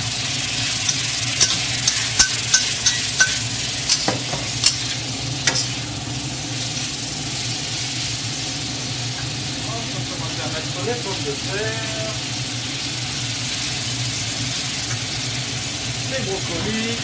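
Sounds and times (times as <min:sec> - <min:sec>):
food sizzling in a wok: 0:00.0 - 0:17.0
spatula scraping against wok: 0:00.6 - 0:05.8.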